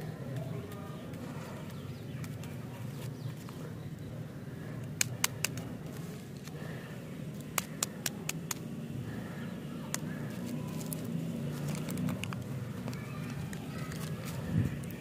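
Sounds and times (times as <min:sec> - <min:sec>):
steady low hum: 0:00.0 - 0:12.9
plastic wrapper crackling: 0:09.9 - 0:15.0.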